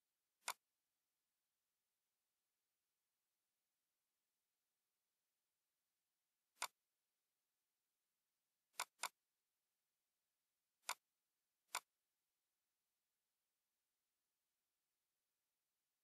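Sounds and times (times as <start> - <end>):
computer mouse button clicking: 0.4 - 0.6.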